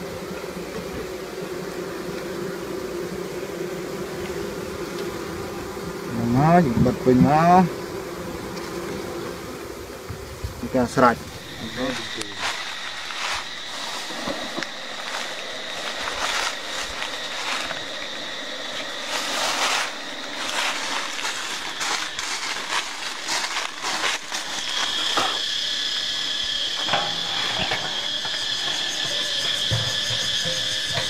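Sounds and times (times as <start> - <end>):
high-pitched whine: 11.2 - 31.0.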